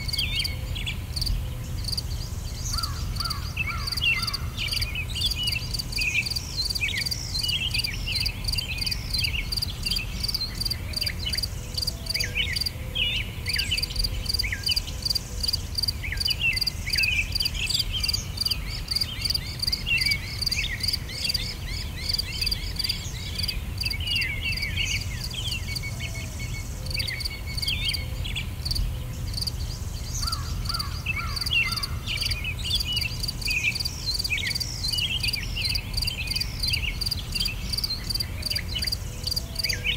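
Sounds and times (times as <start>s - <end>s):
insects trilling: 0.0s - 12.8s, 13.4s - 39.9s
small birds chirping: 0.0s - 39.9s.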